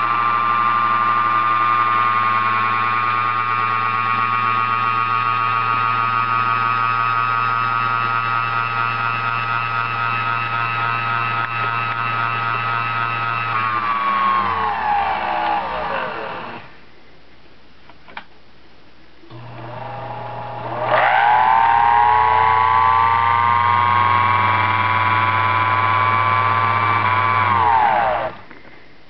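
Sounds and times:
low electric motor hum: 0.0 - 16.8, 19.2 - 29.0
watchmaker's lathe high whine: 19.3 - 28.4.

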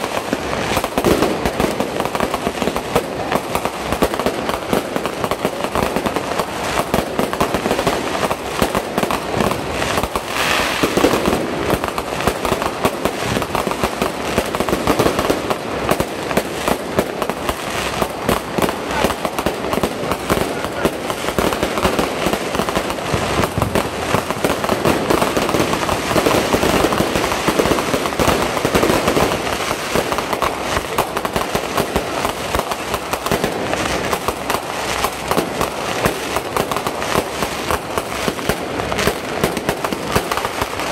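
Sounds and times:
fireworks bangs and crackles: 0.0 - 40.9.

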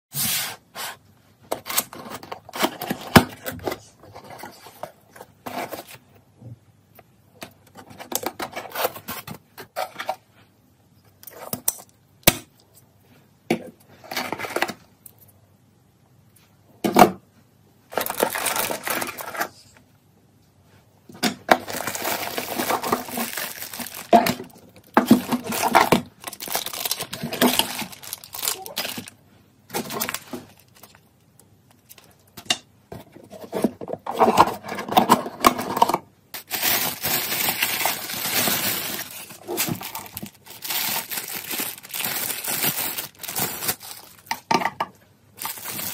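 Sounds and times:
plastic wrap crinkling: 17.9 - 19.5, 21.5 - 31.1, 36.3 - 44.4, 45.4 - 45.9.

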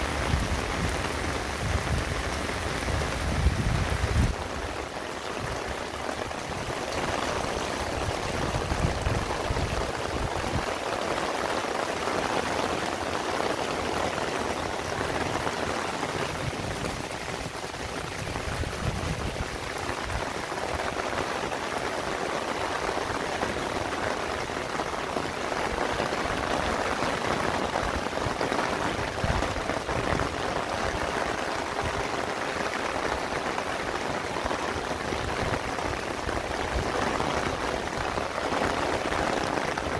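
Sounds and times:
heavy rain on leaves: 0.0 - 39.9.

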